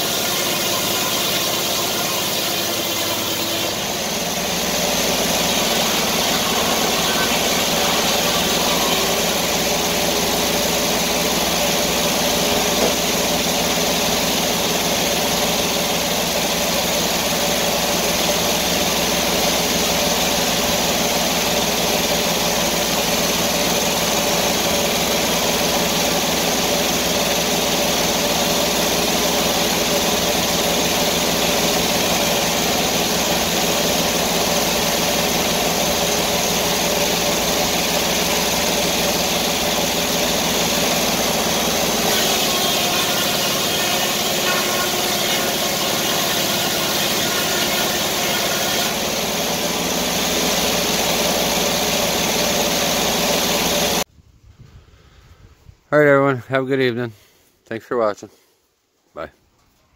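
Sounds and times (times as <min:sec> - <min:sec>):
sawmill engine running: 0:00.0 - 0:54.1.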